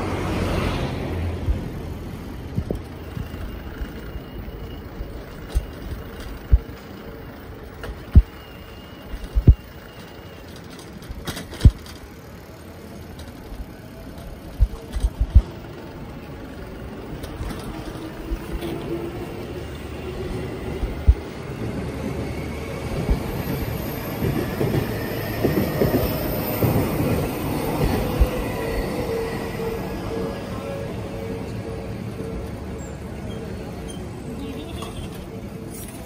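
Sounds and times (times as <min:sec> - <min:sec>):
traffic: 0:00.0 - 0:36.0
bicycle tyres rumbling: 0:00.1 - 0:21.8.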